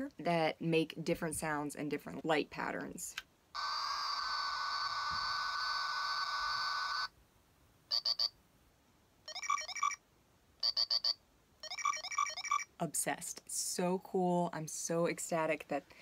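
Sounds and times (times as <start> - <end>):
rapid electronic beeps: 9.3 - 10.0, 10.6 - 12.7
warbling electronic chirps: 10.6 - 12.7.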